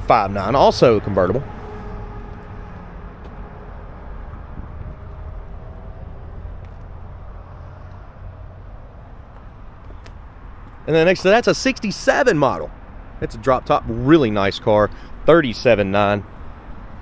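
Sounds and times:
low rumble: 0.0s - 10.5s.

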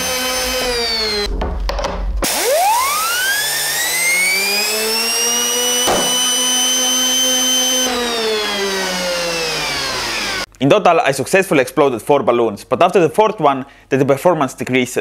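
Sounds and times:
compressor whine: 0.0s - 1.4s, 2.2s - 10.5s
balloon bursting: 5.8s - 6.5s.

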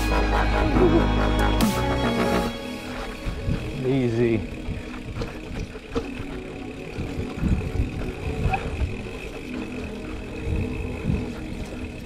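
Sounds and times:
bike rumbling over dirt trail: 2.7s - 12.0s
wind buffeting microphone: 3.2s - 12.0s.

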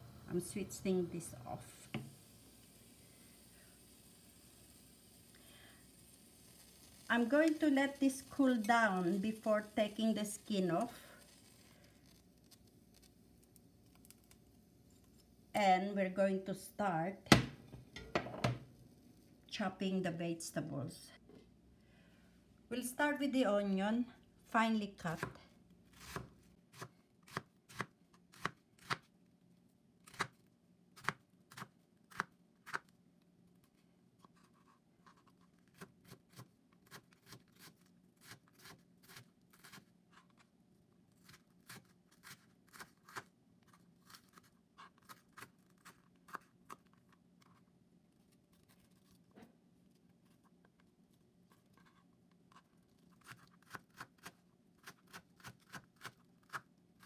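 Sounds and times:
faint steady hum: 0.0s - 27.3s.

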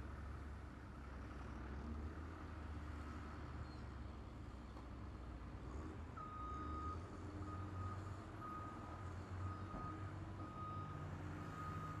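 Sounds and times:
vehicle backup alarm beeping: 6.2s - 12.0s.

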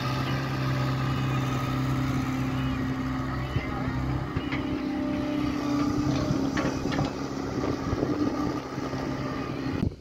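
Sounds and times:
excavator diesel engine running: 0.0s - 10.0s.

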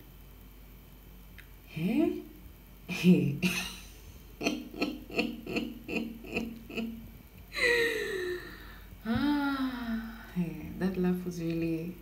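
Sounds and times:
woman laughing: 3.0s - 8.6s.

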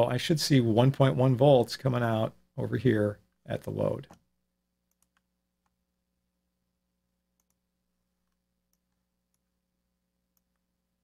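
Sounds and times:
computer mouse clicks: 4.9s - 5.8s, 7.4s - 7.6s.

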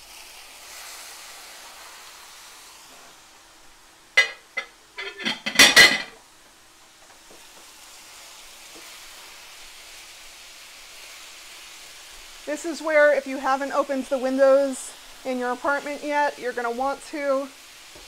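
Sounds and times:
meat sizzling in a pan: 0.0s - 18.0s
spatula knocking and scraping pan: 4.2s - 6.2s.

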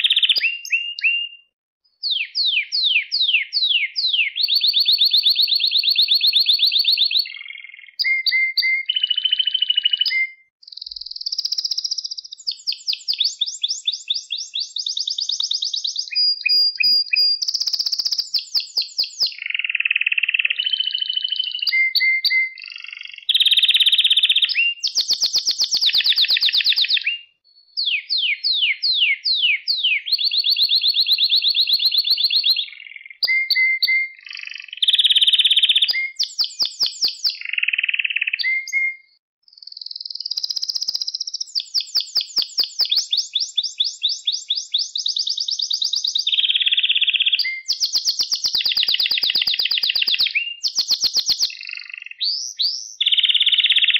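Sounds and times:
canary singing: 0.0s - 53.9s.

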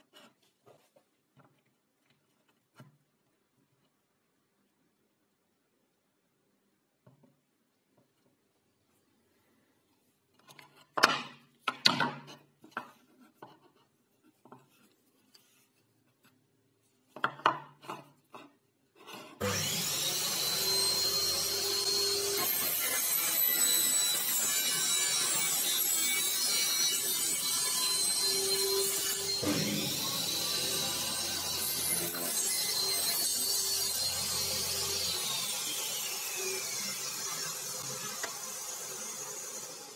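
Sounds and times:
wooden jig knocks and scrapes: 10.3s - 16.3s, 17.1s - 19.4s
table saw running: 19.4s - 39.9s.

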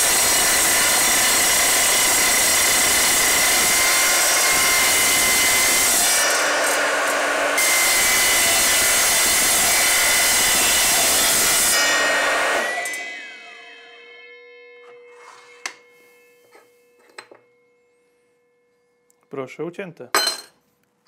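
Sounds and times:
mitre saw cutting steel: 0.0s - 14.1s
saw blade spinning down: 14.8s - 16.8s.

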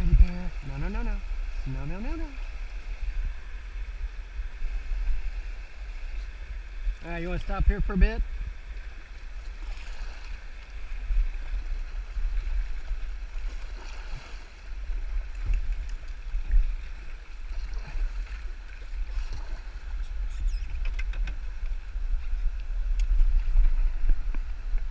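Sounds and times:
water lapping against kayak hull: 0.0s - 24.9s
wind buffeting microphone: 0.0s - 24.9s
small water splashes: 9.1s - 20.6s.

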